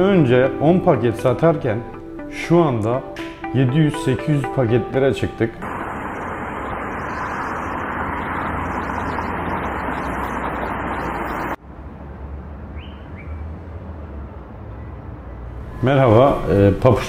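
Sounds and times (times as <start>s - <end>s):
street ambience: 5.5s - 17.0s
road traffic roar: 5.6s - 16.7s
bird chirps: 6.0s - 11.6s, 12.8s - 13.4s.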